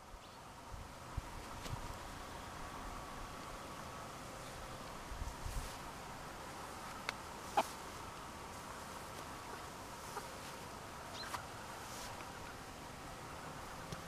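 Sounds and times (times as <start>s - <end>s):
chickens clucking quietly: 5.5s - 14.0s.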